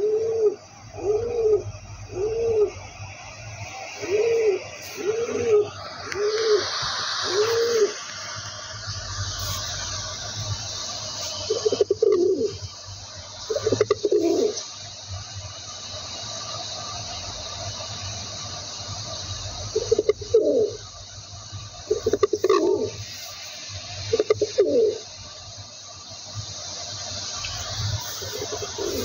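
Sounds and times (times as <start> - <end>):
pigeon cooing: 0.0 - 2.8, 4.0 - 8.1, 11.5 - 12.6, 13.5 - 14.6, 19.8 - 20.8, 21.9 - 23.0, 24.2 - 25.0, 28.2 - 29.0.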